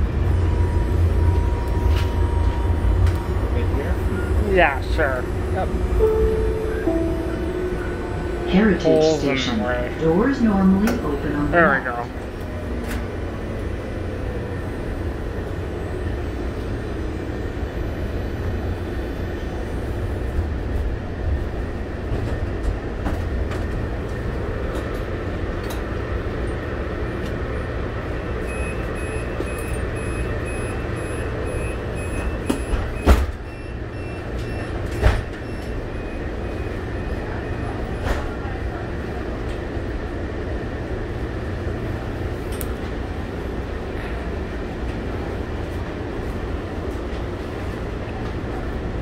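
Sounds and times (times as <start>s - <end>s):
light-rail car rumbling: 0.0s - 49.0s
faint repeating beeps: 28.4s - 34.7s.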